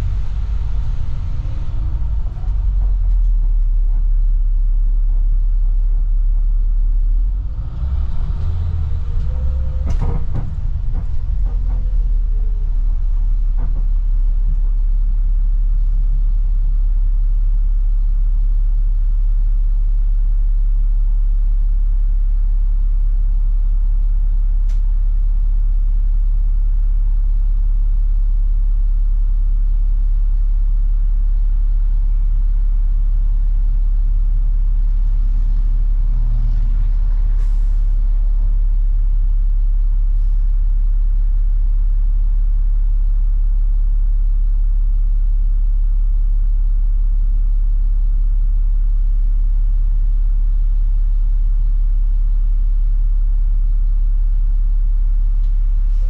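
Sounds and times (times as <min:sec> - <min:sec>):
bus diesel engine idling: 0:00.0 - 0:19.2, 0:31.6 - 0:42.0, 0:55.1 - 0:56.0
short air hisses: 0:37.3 - 0:38.0.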